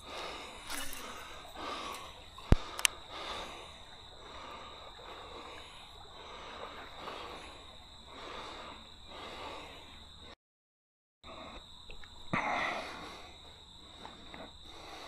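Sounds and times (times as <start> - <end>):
close breathing: 0.0 - 10.4, 12.3 - 15.0
high insect drone: 0.0 - 10.4, 11.3 - 15.0.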